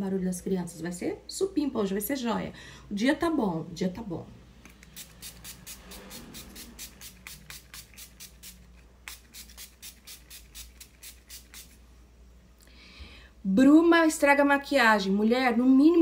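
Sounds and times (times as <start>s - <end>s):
spray bottle puffs: 4.7s - 11.8s.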